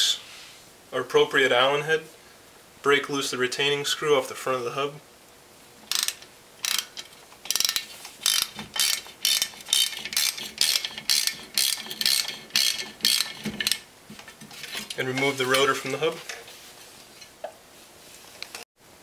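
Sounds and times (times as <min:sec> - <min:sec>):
ratchet wrench clicking: 0:05.9 - 0:13.8.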